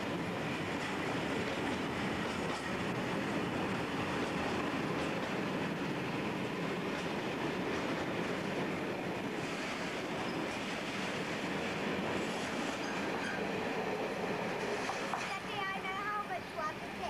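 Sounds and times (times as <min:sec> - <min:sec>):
train wheels rumbling on rails: 0:00.0 - 0:17.0
high wheel squeaks: 0:09.4 - 0:11.1, 0:12.2 - 0:13.6.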